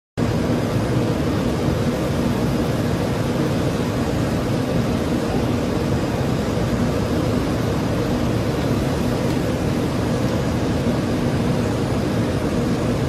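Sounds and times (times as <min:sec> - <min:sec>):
airliner cockpit engine and airflow rumble: 0:00.2 - 0:13.0
faint steady hum: 0:00.2 - 0:13.0.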